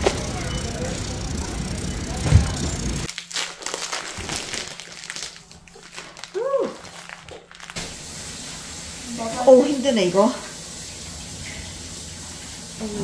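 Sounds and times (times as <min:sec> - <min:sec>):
loud background noise: 0:00.0 - 0:03.1
plastic wrap crinkling: 0:03.0 - 0:08.1.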